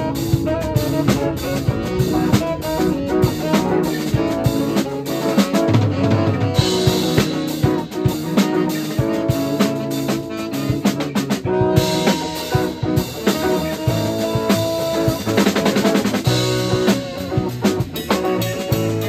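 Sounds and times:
drum kit hits: 0:00.0 - 0:19.0
jazz band playing: 0:00.0 - 0:19.0.

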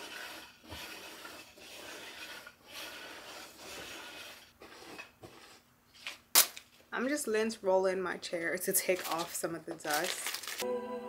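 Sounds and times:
lint roller swishing on fabric: 0:00.0 - 0:05.4.

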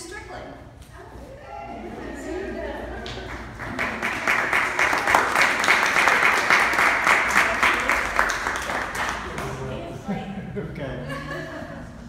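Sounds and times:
audience applauding: 0:02.9 - 0:09.8.

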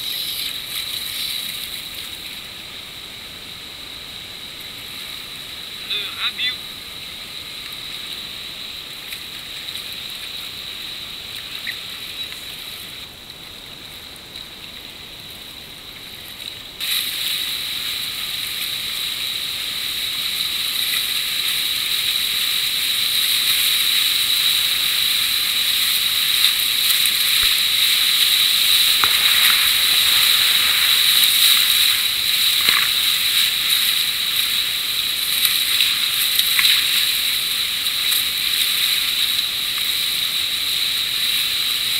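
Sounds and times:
rushing whitewater splashing: 0:16.8 - 0:41.9.

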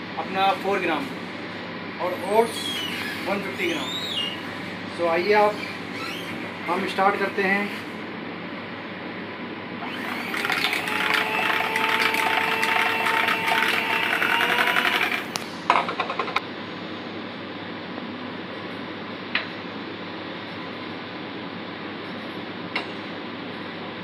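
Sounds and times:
electric hand mixer whining: 0:09.8 - 0:15.4.

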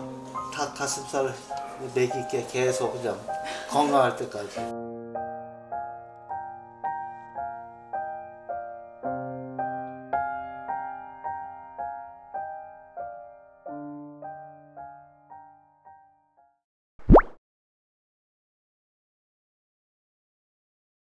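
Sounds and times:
gentle piano music: 0:00.0 - 0:16.5.

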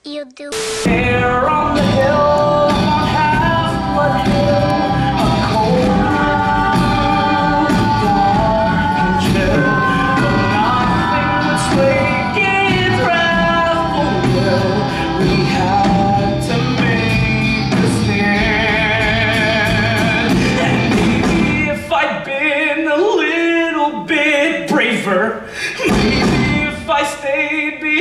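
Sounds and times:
live band playing: 0:00.0 - 0:21.8
man singing rock song: 0:00.9 - 0:24.5.

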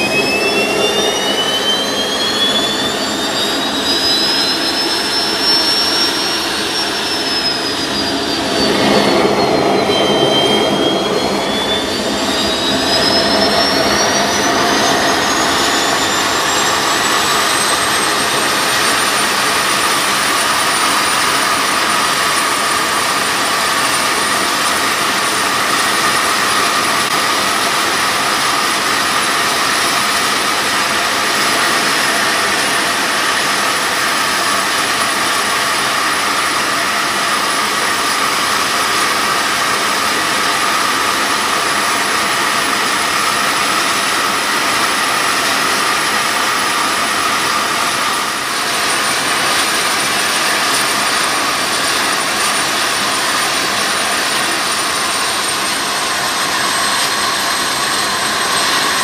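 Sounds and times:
rush of air: 0:00.0 - 0:15.2
gas turbine engine whine: 0:00.0 - 0:59.0.

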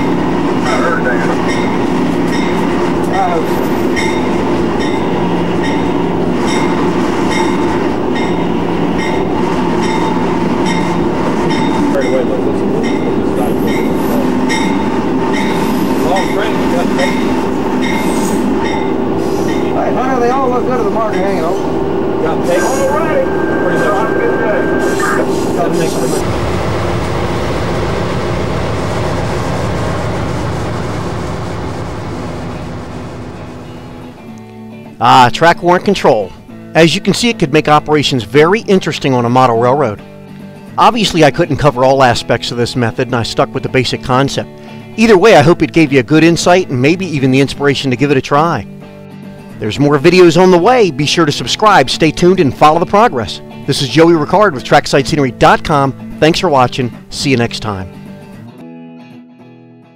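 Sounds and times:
rail and wheel noise: 0:00.0 - 0:34.4
freight train rumbling past: 0:00.0 - 0:35.0
locomotive drone: 0:00.0 - 0:35.0.

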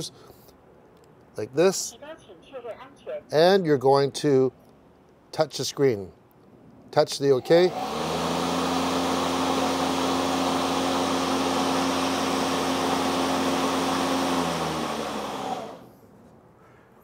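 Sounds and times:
mower blade motor hum: 0:07.5 - 0:15.9.

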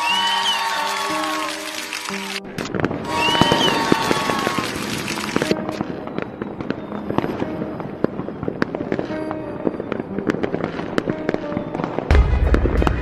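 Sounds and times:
background music: 0:00.0 - 0:13.0
fireworks popping and crackling: 0:00.0 - 0:13.0
loud low boom: 0:12.1 - 0:13.0.

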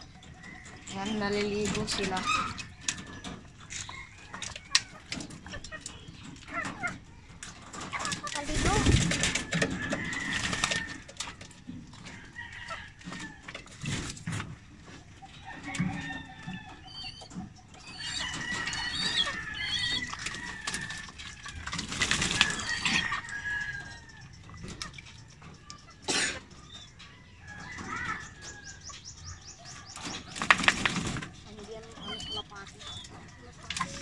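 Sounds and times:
pigeons splashing in water: 0:00.0 - 0:14.7, 0:17.9 - 0:25.9, 0:30.0 - 0:34.0
chickens calling: 0:00.0 - 0:34.0
rooster crowing: 0:09.3 - 0:11.1, 0:17.9 - 0:21.2, 0:22.4 - 0:24.2.

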